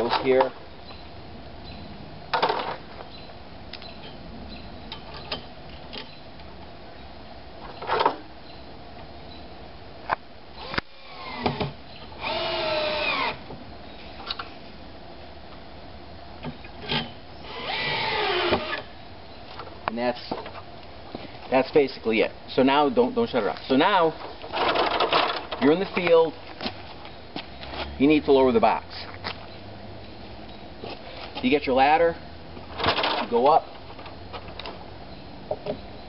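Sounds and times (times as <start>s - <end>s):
cordless drill driving screws: 10.6s - 13.4s, 17.4s - 18.9s.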